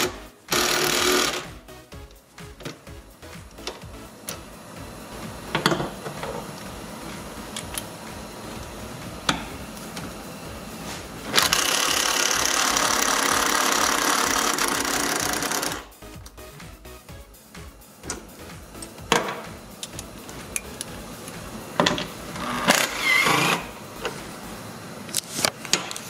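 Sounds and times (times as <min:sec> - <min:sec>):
impact wrench hammering: 0:00.0 - 0:04.6, 0:05.3 - 0:06.5, 0:09.0 - 0:10.1, 0:11.3 - 0:16.4, 0:18.0 - 0:23.7.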